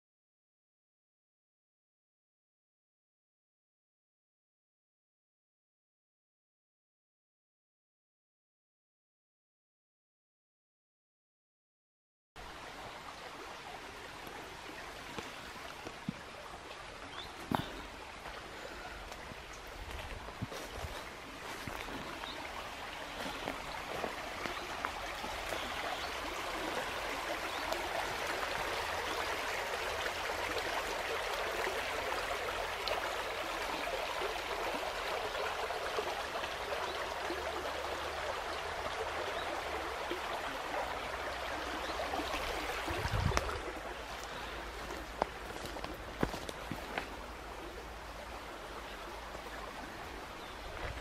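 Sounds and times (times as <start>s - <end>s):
stream flowing: 12.4s - 51.0s.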